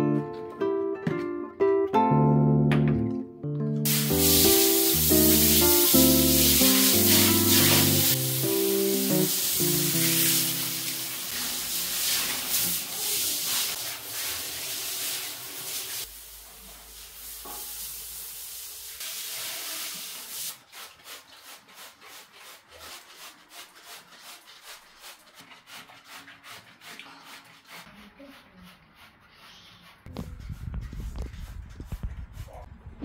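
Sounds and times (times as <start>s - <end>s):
trigger spray bottle spraying: 3.9s - 11.0s
showerhead spraying water on tub: 3.9s - 28.4s.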